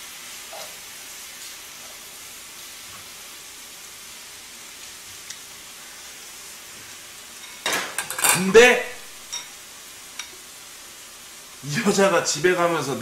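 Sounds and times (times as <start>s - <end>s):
food sizzling in a frying pan: 0.0s - 13.0s
metal tongs tapping pan: 7.4s - 8.5s.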